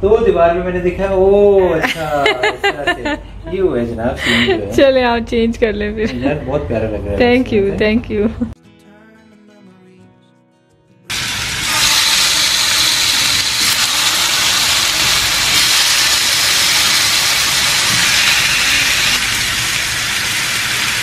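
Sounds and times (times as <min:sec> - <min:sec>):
chicken sizzling on grill pan: 0:11.1 - 0:21.0.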